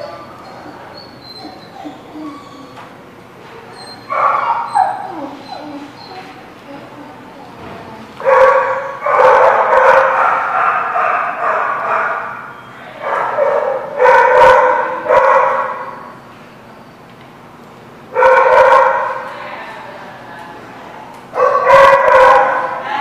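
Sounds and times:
small dogs barking: 3.8 - 6.3, 8.2 - 16.1, 18.2 - 19.3, 21.4 - 22.8.

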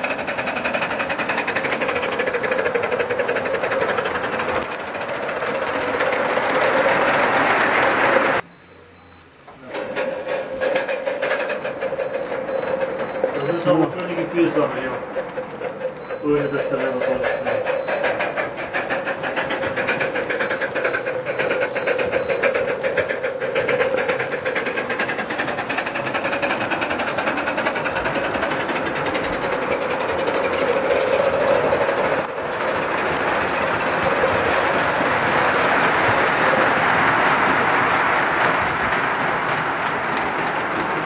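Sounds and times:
steam locomotive chuffing: 0.0 - 8.5, 9.6 - 41.0
wheels rolling on rails: 0.0 - 41.0
steam hiss: 9.2 - 15.0, 15.8 - 36.7.

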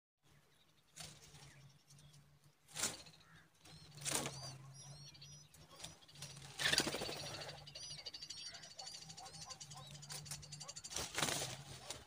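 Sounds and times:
rustling bursts at nest: 2.6 - 4.7, 5.5 - 7.6, 9.7 - 12.0
high bird chirps: 2.8 - 11.2.

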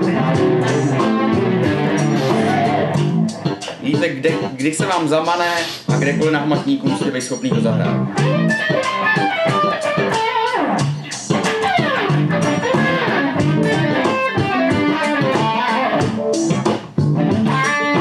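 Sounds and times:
low bass line: 0.0 - 3.5, 7.5 - 8.8, 10.9 - 14.0
electric guitar blues lick: 0.0 - 4.9, 5.5 - 18.0.

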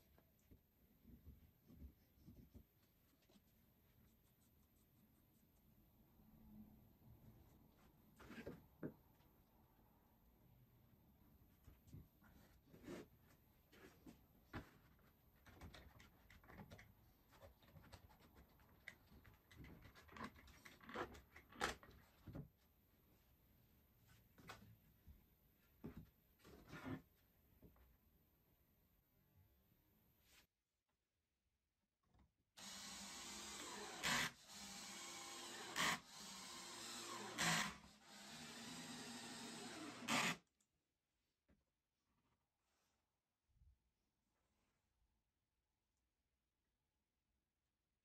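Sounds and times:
cordless drill whirring: 32.6 - 40.4
loud drill bursts: 32.6 - 40.4.

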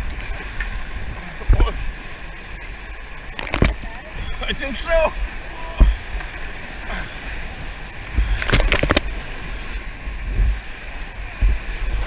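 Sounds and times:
whitewater rapids rushing: 0.0 - 12.0
wind buffeting microphone: 0.0 - 12.0.

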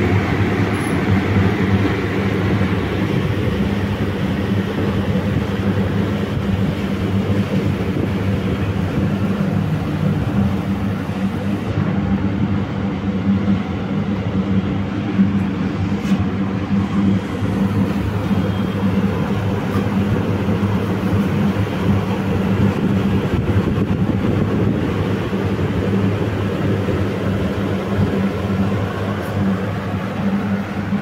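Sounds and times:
mechanical hum: 0.0 - 31.0.

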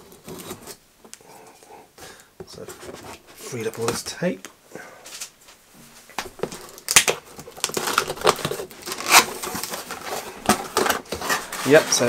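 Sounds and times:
cardboard rustling scrapes: 0.0 - 0.8, 2.6 - 3.9, 7.6 - 12.0.

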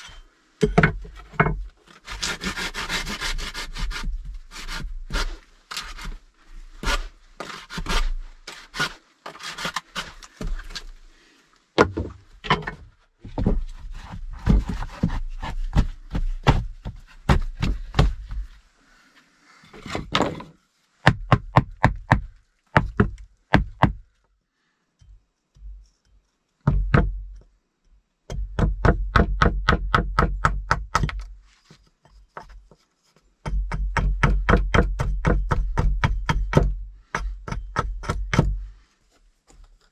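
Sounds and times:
hatchet splitting wood: 0.6 - 6.2, 21.0 - 24.0, 28.3 - 31.4, 33.4 - 38.7.

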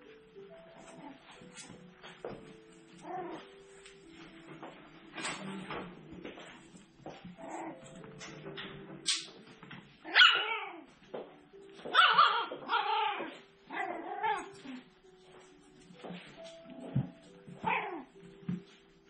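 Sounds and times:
puppies yipping and whining: 7.1 - 9.4, 10.0 - 11.0, 11.8 - 14.9, 16.2 - 18.2
puppy yelp: 10.0 - 10.9, 11.8 - 14.8, 17.6 - 18.1.

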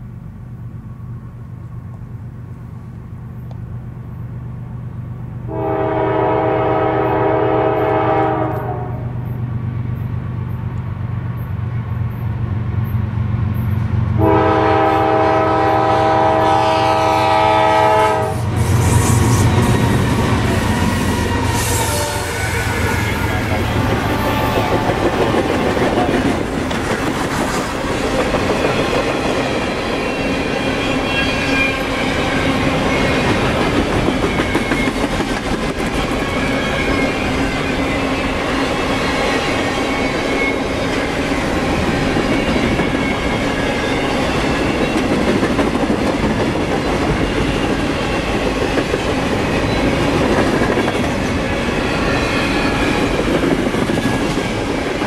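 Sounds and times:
freight cars rumbling past: 18.3 - 55.0
high wheel squeals: 18.6 - 26.4, 27.8 - 35.0, 36.0 - 45.1, 50.8 - 53.3
wheels clacking over rail joints: 19.7 - 55.0.

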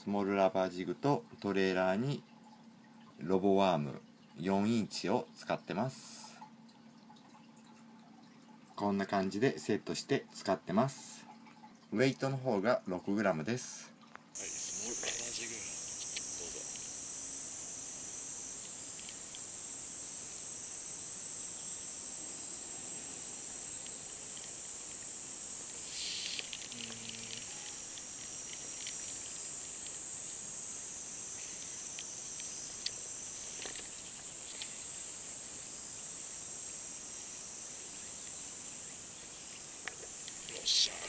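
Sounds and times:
insects chirping: 14.3 - 41.0.

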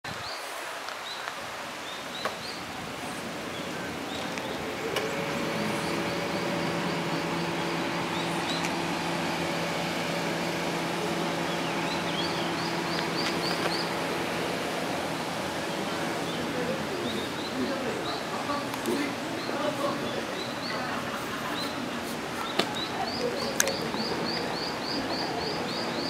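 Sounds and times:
outdoor background noise: 0.0 - 26.0
small birds chirping: 0.1 - 26.0
steady mechanical hum: 1.5 - 26.0.

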